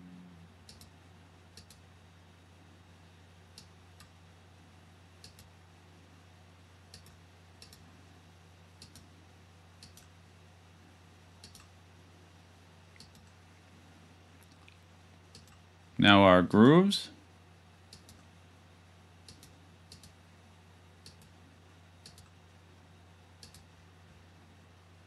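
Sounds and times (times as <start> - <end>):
faint low hum: 0.0 - 25.0
computer mouse clicking: 0.7 - 0.9, 1.6 - 1.8, 5.2 - 5.5, 6.9 - 7.8, 8.8 - 9.1, 9.8 - 10.1, 11.4 - 11.7, 13.0 - 13.4, 15.3 - 15.6, 17.9 - 18.3, 19.2 - 20.2, 21.0 - 21.4, 22.0 - 22.3, 23.4 - 23.7.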